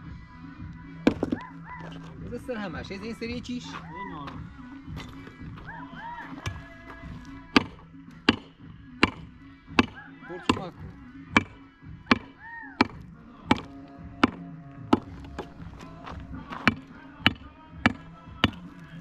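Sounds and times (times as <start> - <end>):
chopping blows: 6.3 - 18.8.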